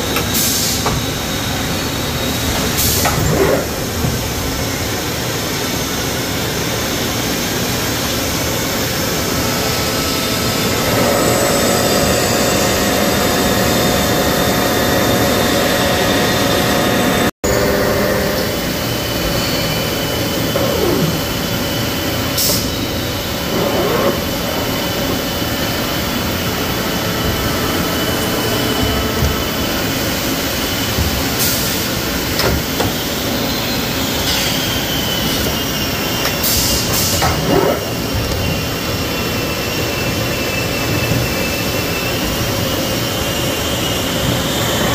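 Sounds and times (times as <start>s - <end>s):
machine spindle cutting metal: 9.8s - 33.7s.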